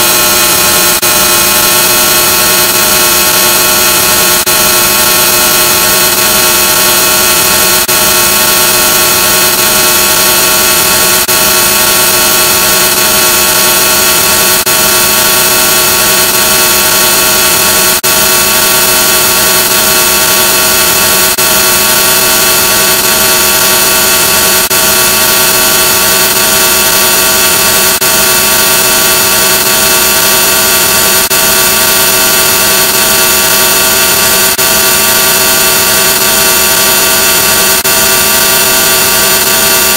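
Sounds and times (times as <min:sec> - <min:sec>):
distorted drone: 0:00.0 - 0:39.9.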